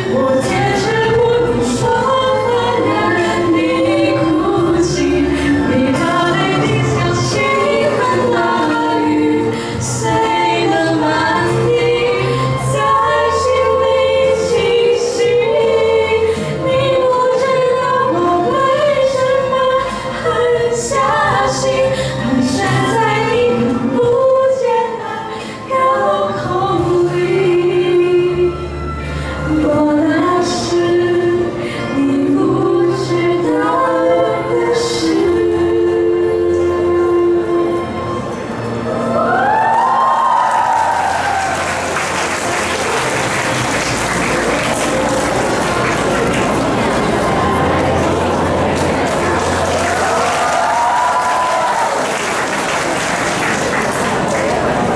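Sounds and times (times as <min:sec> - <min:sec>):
girls singing into microphones: 0:00.0 - 0:42.8
sustained low bass notes: 0:41.9 - 0:50.0.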